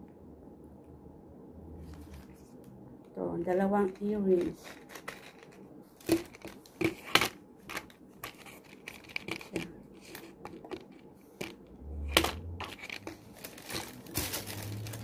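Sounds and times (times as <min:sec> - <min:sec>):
plastic packaging crinkling: 0:07.7 - 0:11.6, 0:12.3 - 0:15.0.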